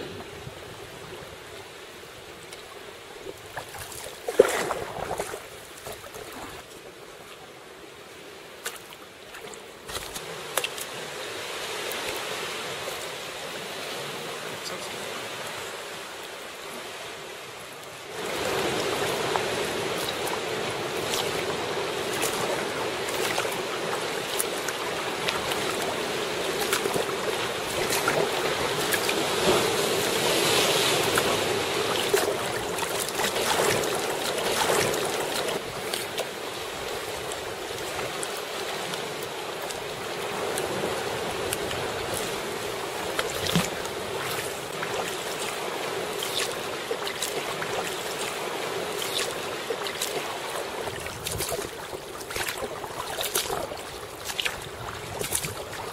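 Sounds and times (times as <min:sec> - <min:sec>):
water lapping around kayak: 0:00.0 - 0:55.9
paddle dipping into water: 0:02.4 - 0:07.4, 0:08.6 - 0:13.2, 0:17.8 - 0:55.9
swell washing against rocks: 0:03.4 - 0:06.7, 0:18.1 - 0:55.9.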